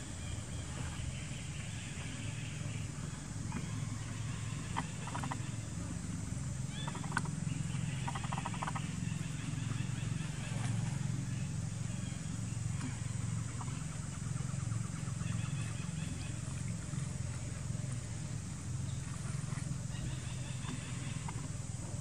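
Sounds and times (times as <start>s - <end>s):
steady low hum: 0.0s - 22.0s
small animal chirping trills: 6.7s - 10.4s.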